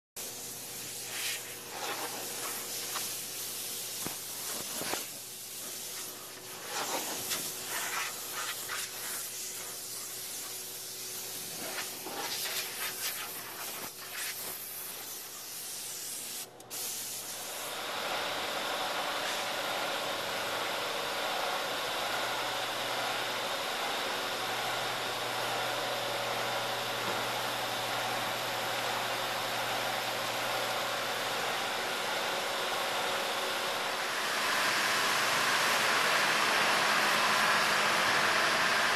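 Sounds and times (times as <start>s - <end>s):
spray gun hissing: 0.2s - 17.7s.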